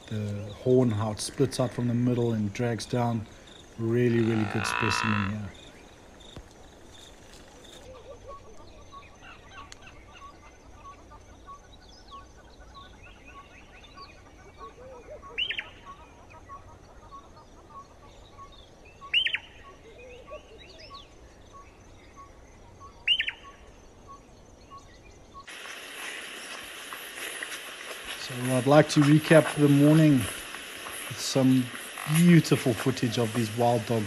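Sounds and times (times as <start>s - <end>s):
steady hiss: 0.0s - 7.9s, 25.2s - 34.0s
faint bird chirps: 3.0s - 34.0s
loud short bird calls: 4.0s - 5.8s.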